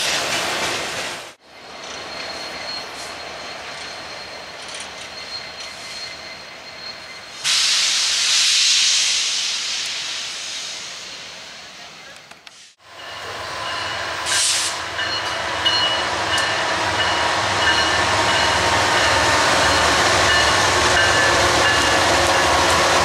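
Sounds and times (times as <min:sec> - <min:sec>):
freight train rolling past: 0:00.0 - 0:12.2, 0:12.8 - 0:23.0
loud air hiss: 0:07.3 - 0:11.7, 0:14.2 - 0:14.9.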